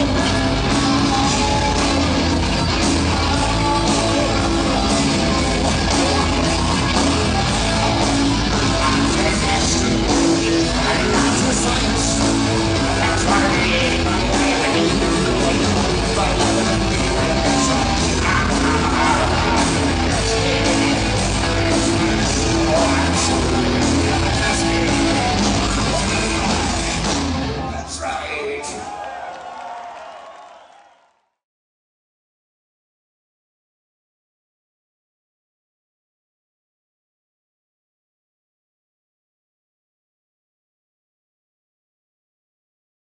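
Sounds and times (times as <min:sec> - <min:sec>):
lead singer singing: 0:00.0 - 0:27.1
electric guitars: 0:00.0 - 0:28.0
bass guitar: 0:00.0 - 0:28.1
rock band playing loud: 0:00.0 - 0:29.0
drums: 0:00.0 - 0:30.0.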